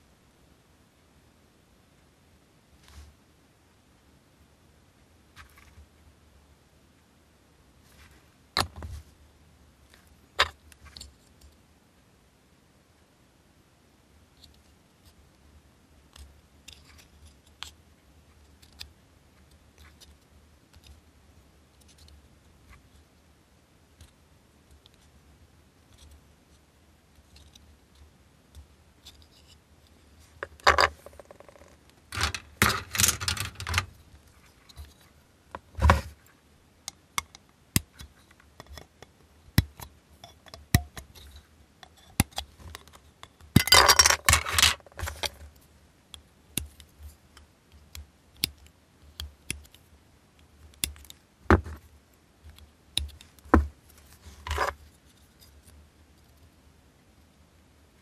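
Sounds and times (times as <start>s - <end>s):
plastic parts rattling and scraping: 30.3s - 36.2s, 41.1s - 45.5s, 53.4s - 54.8s.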